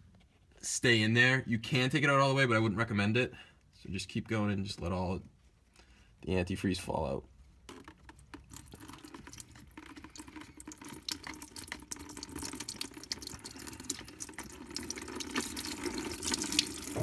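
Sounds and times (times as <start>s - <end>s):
liquid splashing into a bucket: 8.1s - 17.0s.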